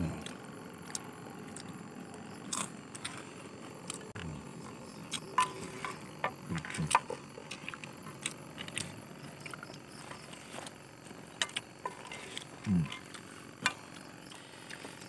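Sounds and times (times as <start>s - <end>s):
wooden spatula scraping a pan: 11.8s - 12.5s.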